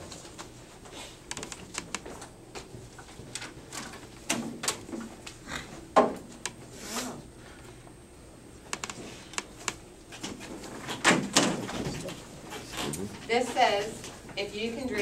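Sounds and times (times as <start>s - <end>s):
small clicks and knocks: 8.7s - 10.4s.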